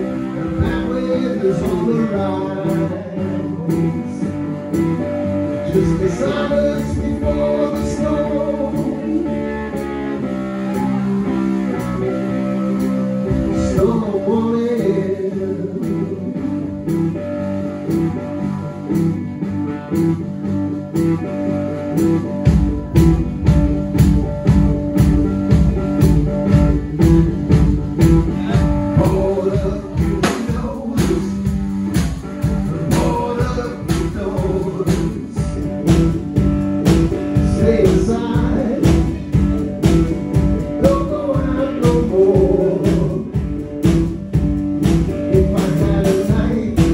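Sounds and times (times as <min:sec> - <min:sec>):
person singing: 0:00.0 - 0:12.0, 0:12.8 - 0:17.2, 0:28.0 - 0:44.0, 0:44.8 - 0:46.9
archtop guitar: 0:00.0 - 0:46.9
steady drum beat: 0:15.9 - 0:46.9.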